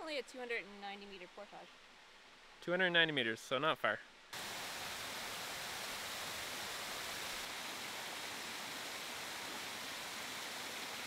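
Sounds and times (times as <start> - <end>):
waterfall over rock: 4.4 - 11.0.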